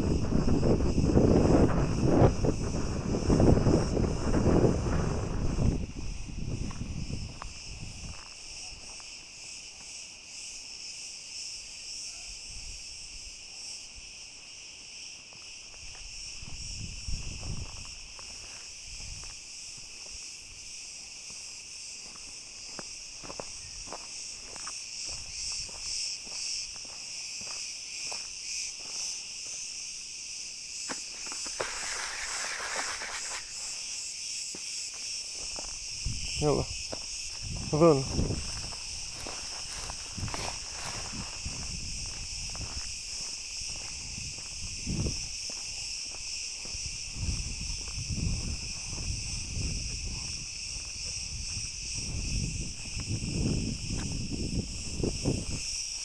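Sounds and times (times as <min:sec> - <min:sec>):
footsteps crunching on dry ground: 0:00.0 - 0:10.0, 0:14.0 - 0:30.0, 0:30.7 - 0:56.0
insects droning: 0:00.0 - 0:56.0
dry grass rustling: 0:31.0 - 0:34.0, 0:37.3 - 0:44.6.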